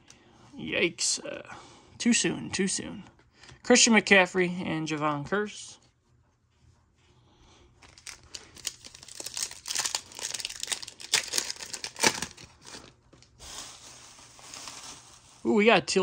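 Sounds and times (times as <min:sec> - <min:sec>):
plastic wrapper tearing and crinkling: 0:07.8 - 0:15.5.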